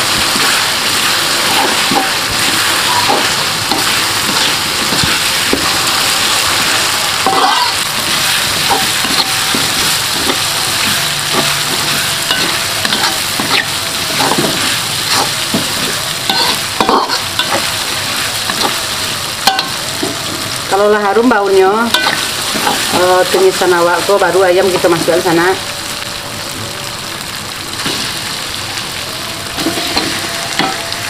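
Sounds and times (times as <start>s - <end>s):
spice paste sizzling in oil: 0.0s - 31.0s
metal spatula scraping wok: 0.1s - 21.0s, 21.9s - 23.7s, 29.4s - 31.0s.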